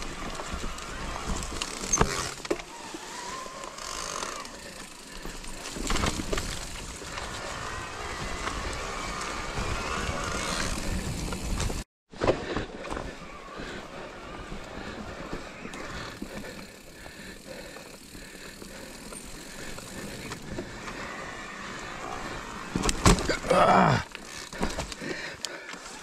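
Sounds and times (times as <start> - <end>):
tyres rolling over leaves: 0.0 - 11.8, 12.9 - 26.0
bike rattling over bumps: 0.0 - 26.0.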